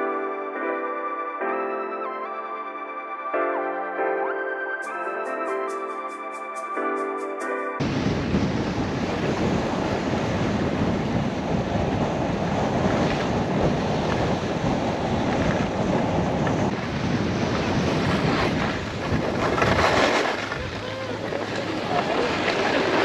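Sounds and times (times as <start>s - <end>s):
skis sliding over packed snow: 7.8s - 23.0s
wind rushing over microphone: 7.8s - 23.0s.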